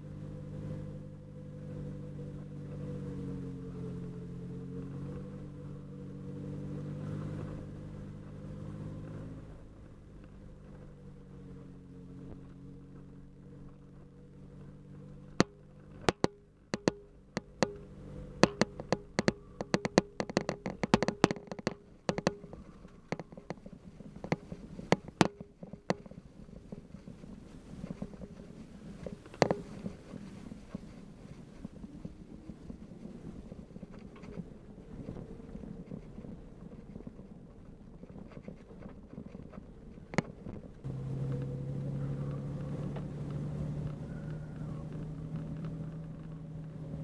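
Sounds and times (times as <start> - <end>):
vehicle engine running: 0.0 - 47.0
clicks and knocks on rocky track: 12.3 - 47.0.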